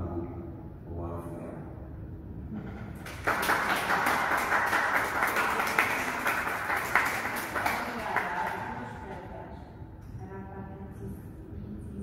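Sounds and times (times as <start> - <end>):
audience applause: 3.0 - 8.8.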